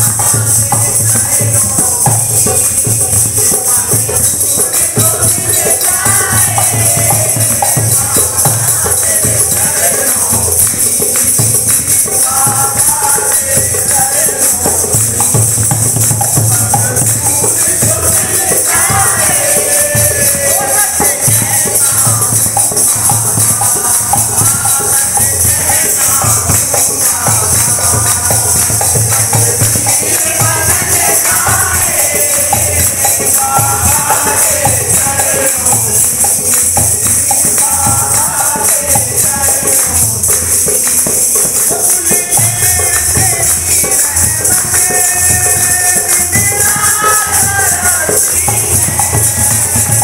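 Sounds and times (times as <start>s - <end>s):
hand drum beating rhythm: 0.0s - 50.0s
jingling hand percussion: 0.0s - 50.0s
men singing devotional song: 0.0s - 50.0s.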